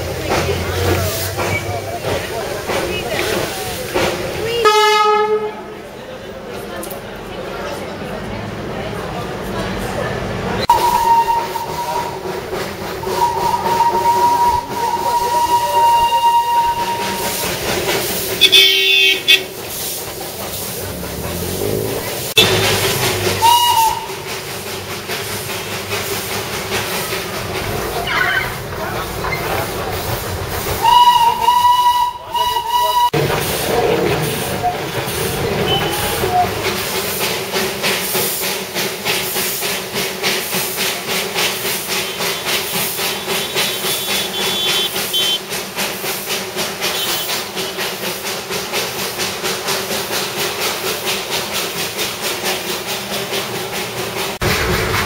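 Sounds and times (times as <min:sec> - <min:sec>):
steam locomotive chuffing: 0:00.0 - 0:55.0
steam hiss: 0:10.6 - 0:55.0
steam whistle blast: 0:10.7 - 0:12.2, 0:13.0 - 0:17.4, 0:23.4 - 0:24.3, 0:30.8 - 0:33.2, 0:42.0 - 0:45.4, 0:46.9 - 0:47.4.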